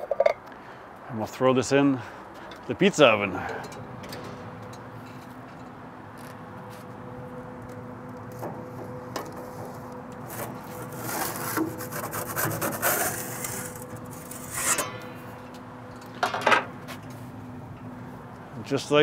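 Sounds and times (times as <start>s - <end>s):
steady low hum: 0.3s - 19.0s
peel scraping on pizza stone: 9.6s - 14.9s.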